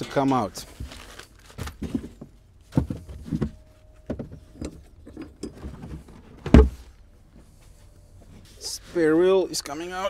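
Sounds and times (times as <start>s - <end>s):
knocks and bumps of items: 0.8s - 7.0s.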